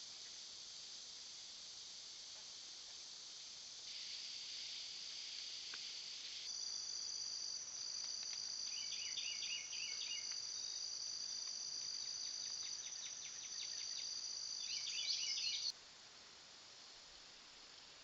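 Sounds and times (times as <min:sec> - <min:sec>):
insect high-pitched trill: 0:03.4 - 0:15.7.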